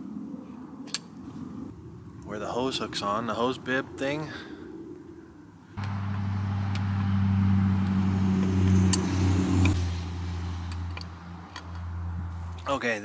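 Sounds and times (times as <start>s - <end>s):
low engine-like hum: 5.8s - 12.7s.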